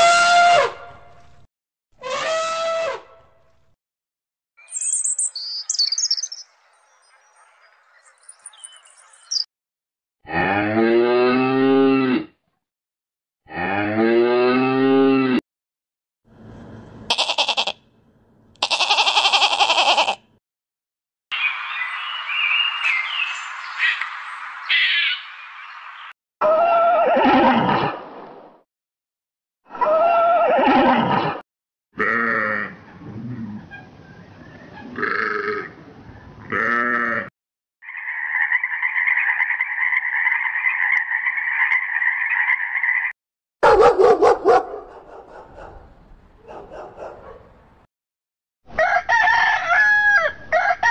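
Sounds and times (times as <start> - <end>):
goat bleating: 17.1 - 17.8, 18.6 - 20.2, 32.0 - 32.8, 35.0 - 35.7, 36.5 - 37.3.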